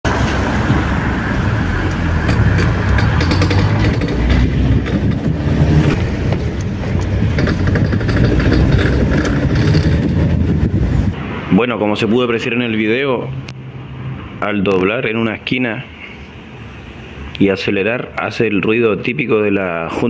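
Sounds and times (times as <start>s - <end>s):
diesel engine accelerating: 0.1s - 11.2s
metallic clicks and crunching: 1.7s - 10.8s.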